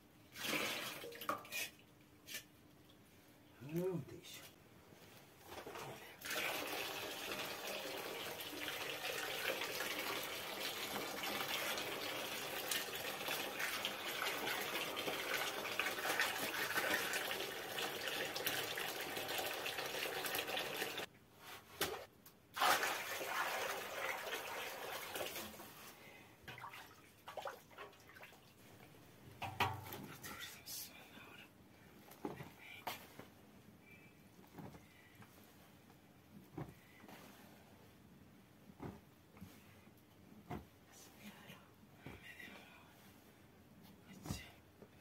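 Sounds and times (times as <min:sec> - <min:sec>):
water pouring into a bowl: 0:06.2 - 0:21.1, 0:22.6 - 0:25.5.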